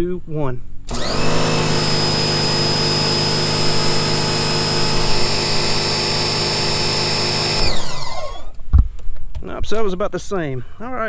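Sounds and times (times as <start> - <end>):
pressure washer motor whine: 0.9 - 8.6.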